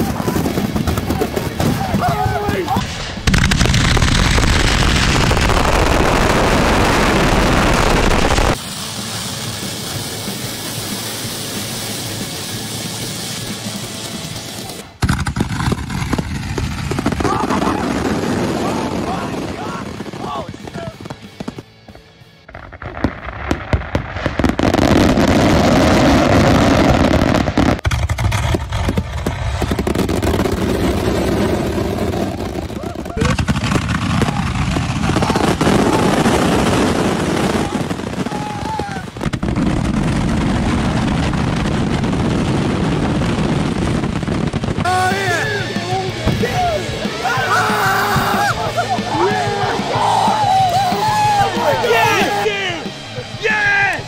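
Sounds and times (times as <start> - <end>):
artillery shells firing and bursting: 0.0 - 21.6, 22.5 - 47.2
steady hiss: 8.0 - 14.7.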